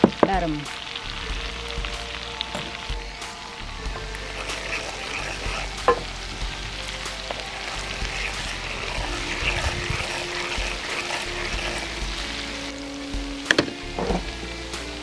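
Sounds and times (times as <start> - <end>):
garlic frying in oil: 0.0 - 15.0
wooden spatula stirring: 3.9 - 12.7.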